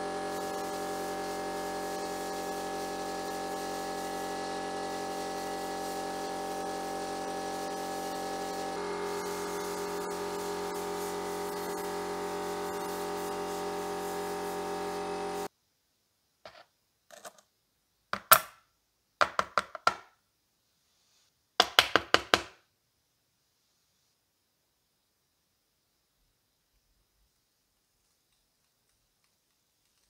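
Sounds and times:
sandblasting hiss: 0.0 - 15.5.

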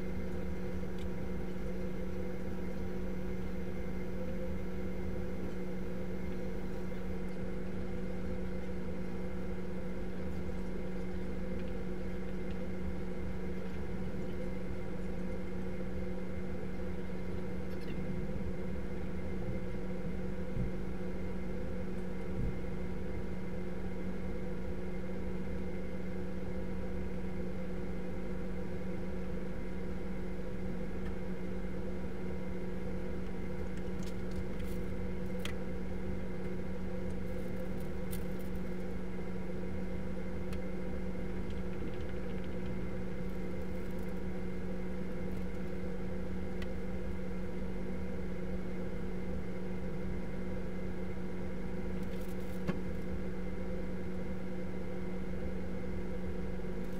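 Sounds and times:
low room tone hum: 0.0 - 56.9.

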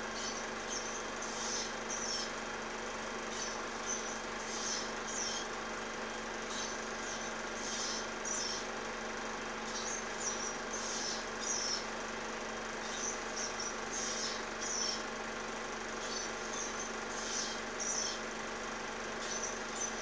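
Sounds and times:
ospreys chirping: 0.0 - 2.4, 3.3 - 5.6, 6.4 - 8.7, 9.6 - 11.9, 12.8 - 15.0, 15.9 - 18.3.

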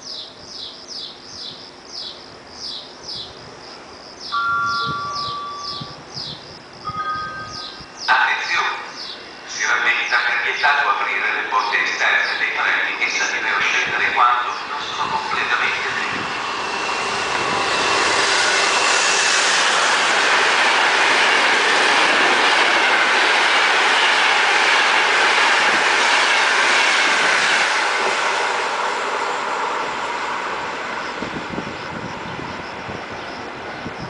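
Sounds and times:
thin high whine: 4.3 - 10.3
train wheels rushing on rails: 4.8 - 34.0.

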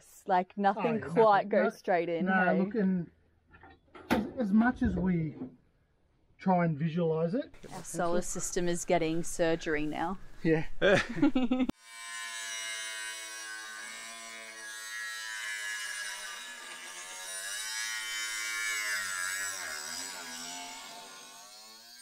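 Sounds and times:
angle grinder cutting metal: 11.8 - 22.0.

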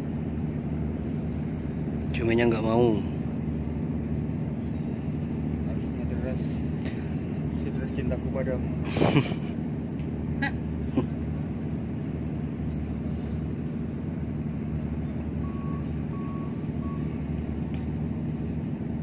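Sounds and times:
ship engine drone: 0.0 - 19.0.

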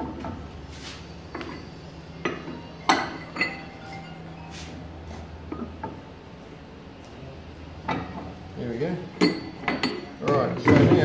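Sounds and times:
steady low hum: 0.0 - 11.0
metal parts clinking: 2.8 - 4.2.

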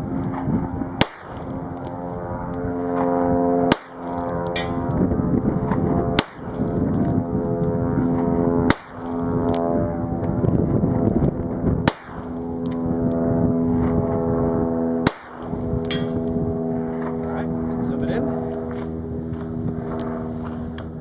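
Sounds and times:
steady low drone: 0.0 - 21.0
pistol shots: 1.0 - 1.7, 3.7 - 4.8, 6.2 - 6.7, 8.7 - 9.2, 11.8 - 12.4, 15.0 - 16.2
bullet pinging steel target: 1.0 - 5.0, 5.7 - 7.7, 8.6 - 10.3, 11.8 - 13.2, 15.0 - 16.4.

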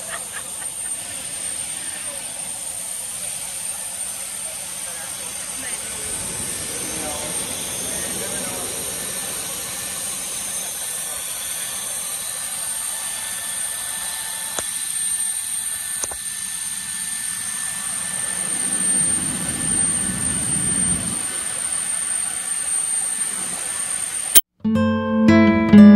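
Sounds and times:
jet turbine whine and rumble: 0.0 - 24.4
high thin tone: 24.6 - 25.9.

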